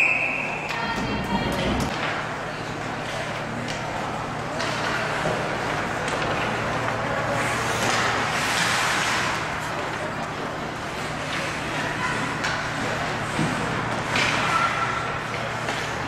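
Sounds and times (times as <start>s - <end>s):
ice rink hiss: 6.6s - 15.1s.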